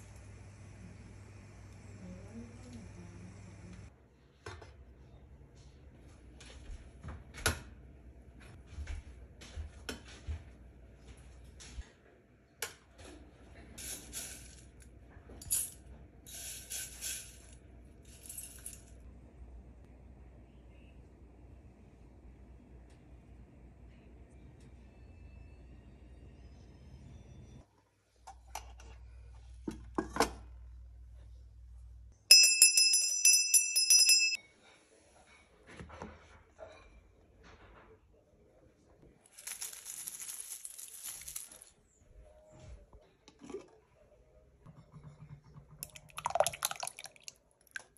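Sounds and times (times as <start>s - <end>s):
brass hand bell ringing: 32.3s - 34.4s.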